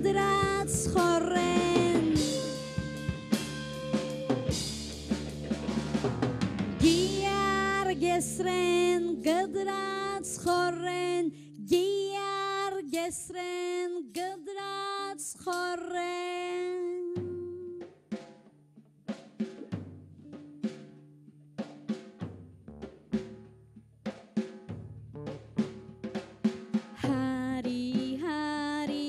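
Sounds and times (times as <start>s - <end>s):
woman singing held notes: 0.0s - 2.7s, 6.8s - 17.8s
live band playing: 0.0s - 11.1s, 19.8s - 22.4s.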